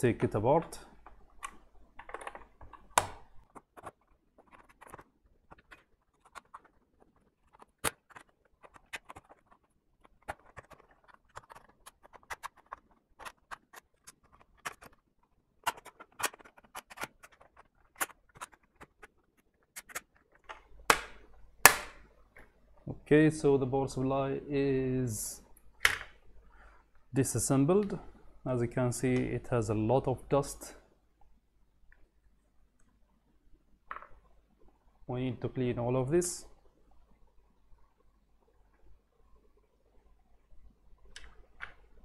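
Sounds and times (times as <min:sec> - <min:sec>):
plastic casing clicking and snapping: 0:01.0 - 0:15.0, 0:15.6 - 0:19.1, 0:19.8 - 0:22.6.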